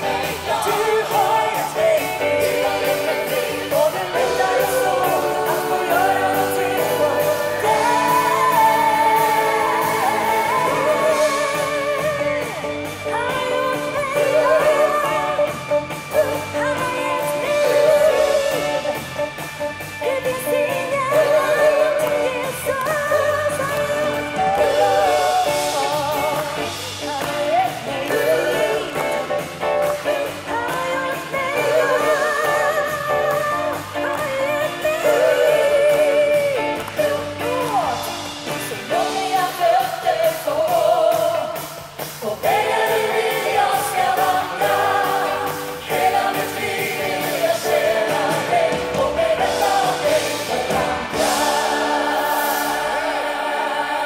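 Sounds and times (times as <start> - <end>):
woman singing lead vocal: 0.0 - 19.0, 20.0 - 54.0
band playing: 0.0 - 54.0
group of singers: 0.0 - 54.0.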